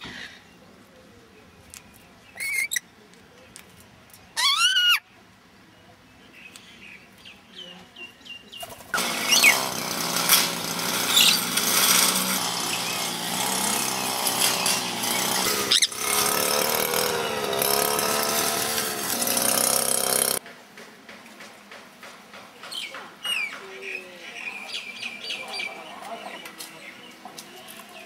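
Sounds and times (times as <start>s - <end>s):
bird squawks: 4.4s - 5.0s, 15.7s - 16.0s
small engine running loudly: 9.0s - 20.4s.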